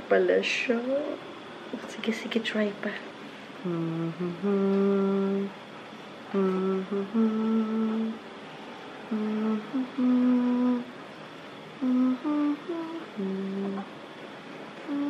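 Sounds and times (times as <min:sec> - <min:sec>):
woman humming a lullaby: 0:03.6 - 0:05.6, 0:06.3 - 0:08.2, 0:09.1 - 0:10.9, 0:11.8 - 0:13.9.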